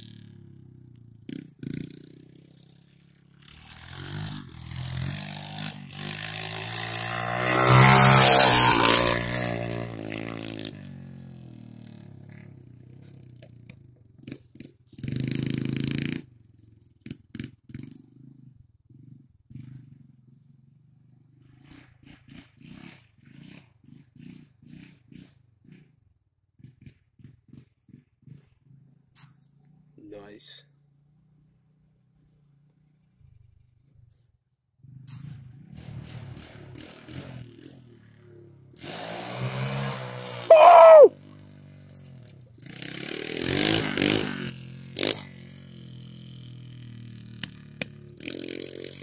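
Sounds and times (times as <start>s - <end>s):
motorbike engine revving: 3.4s - 11.8s.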